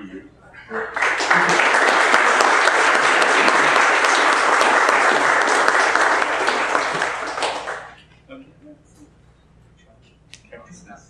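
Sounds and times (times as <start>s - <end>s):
audience applauding: 0.7s - 8.0s.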